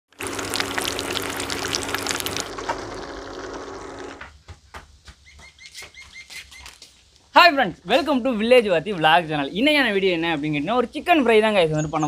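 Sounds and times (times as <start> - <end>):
chicken sizzling in hot oil: 0.1 - 4.2.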